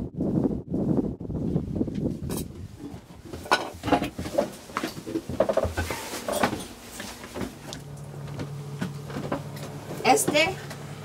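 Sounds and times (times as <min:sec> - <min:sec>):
wind on microphone: 0:00.0 - 0:04.1
footsteps on wooden steps: 0:02.9 - 0:10.8.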